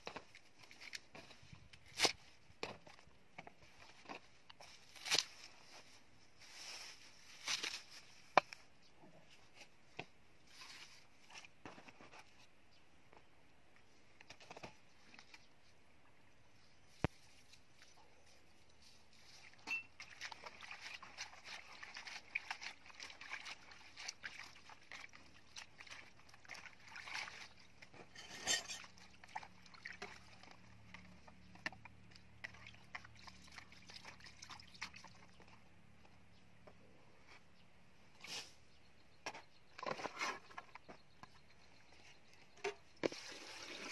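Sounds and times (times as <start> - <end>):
water sloshing in a basin: 19.2 - 36.0.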